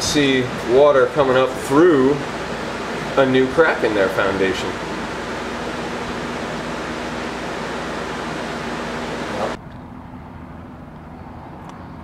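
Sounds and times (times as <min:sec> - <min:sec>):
steady rushing noise: 0:02.3 - 0:09.6.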